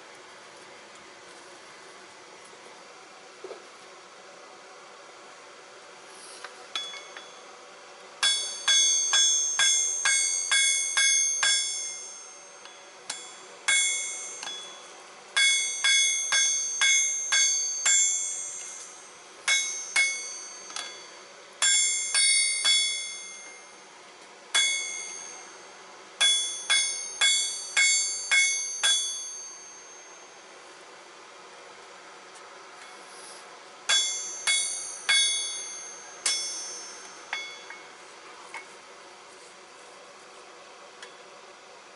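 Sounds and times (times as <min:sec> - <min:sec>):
hammer striking metal on anvil: 0:06.8 - 0:07.4, 0:08.2 - 0:23.9, 0:24.5 - 0:30.5, 0:33.9 - 0:38.0.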